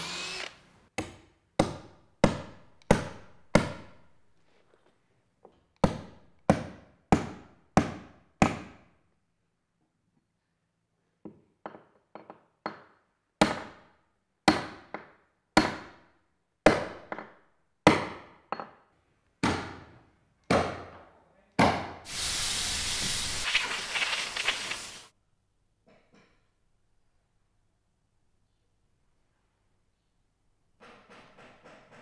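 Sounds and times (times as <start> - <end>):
steady hiss: 22.1 - 25.1.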